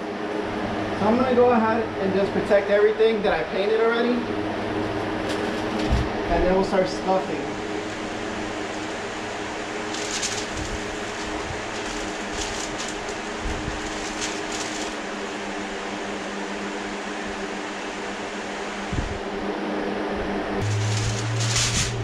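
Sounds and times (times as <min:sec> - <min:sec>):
steady mechanical hum: 0:00.0 - 0:22.0
paper rustling: 0:05.2 - 0:06.2, 0:07.8 - 0:15.8, 0:20.6 - 0:22.0.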